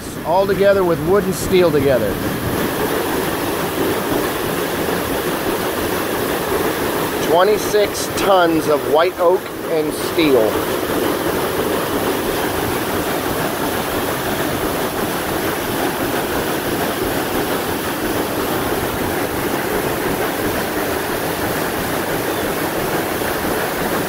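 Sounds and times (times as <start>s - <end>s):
paddlewheel churning water: 0.0s - 24.0s.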